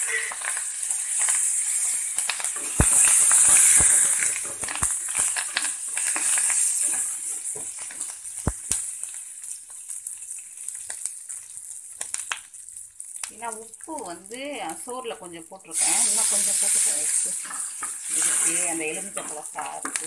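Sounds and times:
spices sizzling in hot oil: 0.0s - 20.0s
wooden spatula knocking pan: 19.0s - 20.0s.

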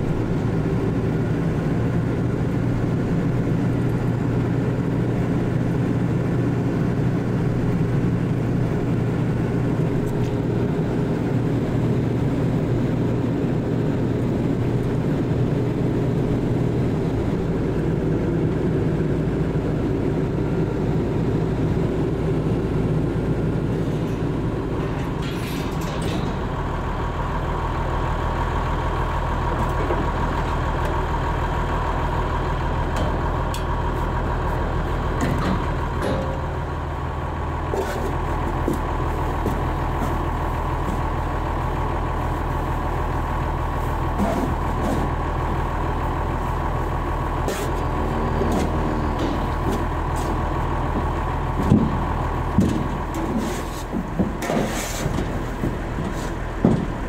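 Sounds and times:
tractor engine running: 0.0s - 57.0s.

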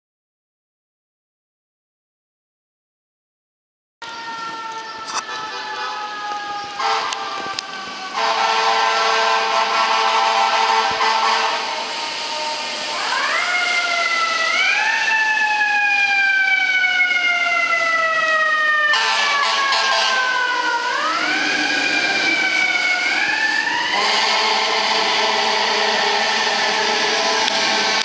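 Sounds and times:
fire engine siren wailing: 4.0s - 28.0s
steady horn tone: 6.8s - 7.5s, 8.1s - 11.8s, 19.0s - 20.4s, 23.9s - 28.0s.

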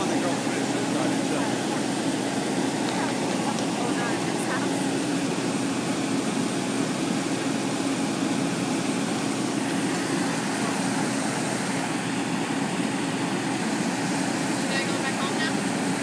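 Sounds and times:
engine droning steadily: 0.0s - 16.0s.

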